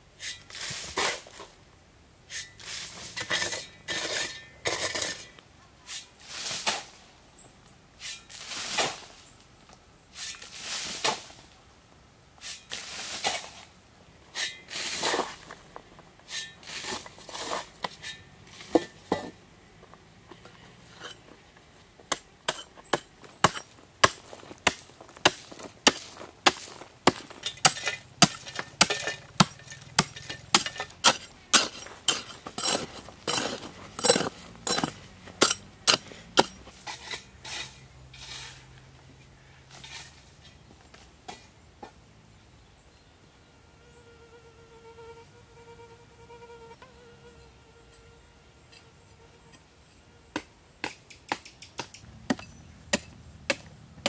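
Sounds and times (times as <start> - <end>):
shovel slapping soil flat: 0.2 - 1.5, 2.3 - 5.3, 5.9 - 7.0, 8.0 - 9.2, 10.1 - 11.6, 12.4 - 15.6, 16.3 - 19.0, 22.1 - 38.8
shovel digging stony soil: 0.2 - 1.6, 2.3 - 7.0, 8.0 - 9.3, 10.1 - 11.4, 12.4 - 15.6, 16.3 - 19.4, 22.1 - 38.8, 39.7 - 40.4.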